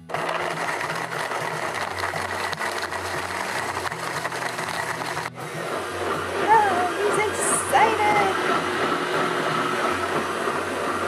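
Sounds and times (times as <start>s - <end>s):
blender crushing ice: 0.0s - 5.4s.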